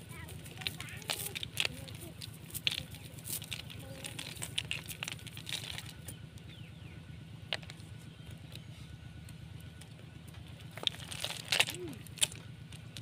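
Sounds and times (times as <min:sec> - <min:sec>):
snail shells clicking together: 0:00.1 - 0:06.2, 0:09.3 - 0:13.0.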